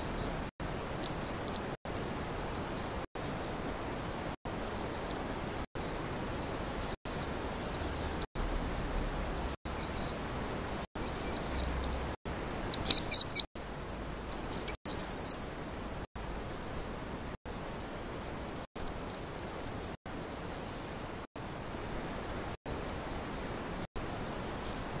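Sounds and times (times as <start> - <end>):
hedgehog squeaking: 6.7 - 8.2, 11.0 - 12.0, 12.6 - 13.5, 14.2 - 15.4, 21.7 - 22.1.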